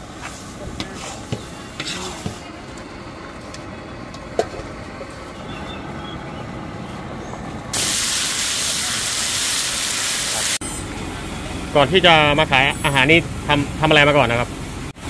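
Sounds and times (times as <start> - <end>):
loud cooking hiss: 0.0 - 2.5, 7.7 - 15.0
busy kitchen clatter: 0.6 - 5.2.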